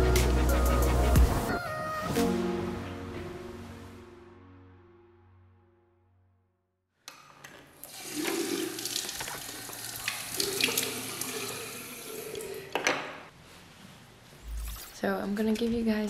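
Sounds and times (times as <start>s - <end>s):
tap water running into basin: 7.8s - 12.8s.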